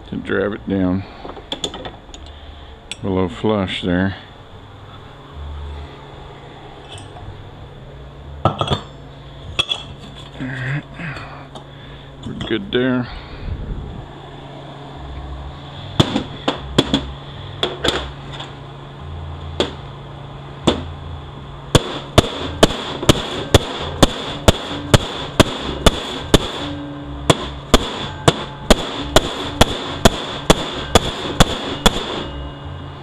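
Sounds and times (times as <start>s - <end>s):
hammer striking metal tool: 21.8s - 32.7s.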